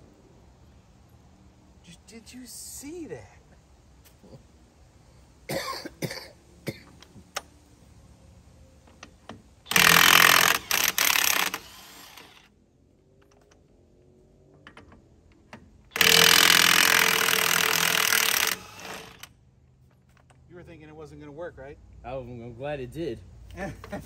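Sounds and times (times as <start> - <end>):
impact wrench hammering: 9.7 - 12.3, 15.9 - 19.3.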